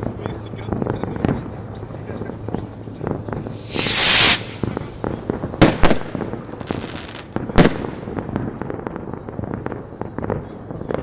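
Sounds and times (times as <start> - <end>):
firework pops and crackles: 0.0 - 11.0
firework bangs: 2.4 - 11.0
firework hissing rush: 3.5 - 5.9.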